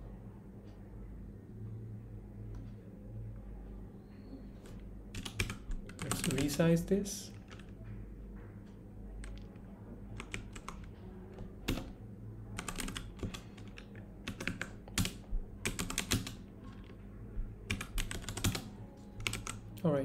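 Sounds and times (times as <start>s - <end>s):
computer keyboard typing: 4.6s - 7.8s, 9.2s - 19.8s.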